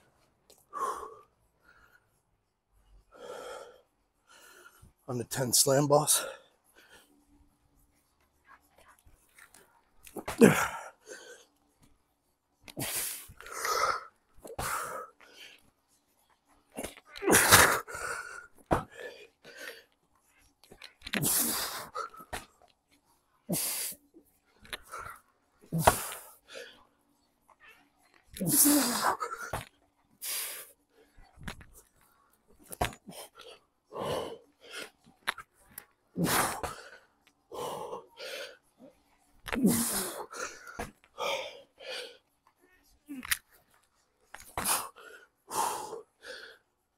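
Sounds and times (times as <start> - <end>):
man breathing heavily: 0.6 - 5.1, 6.1 - 7.3, 12.7 - 16.0, 16.6 - 20.0, 21.1 - 22.5, 28.5 - 31.4, 32.6 - 35.2, 36.1 - 42.4, 44.4 - 46.9.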